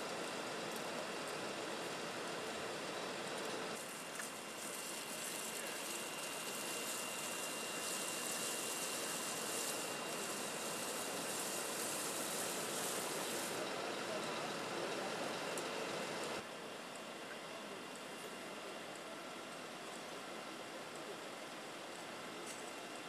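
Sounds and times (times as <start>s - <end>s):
thin high whine: 3.1s - 16.4s
water pump rushing hiss: 3.8s - 16.4s.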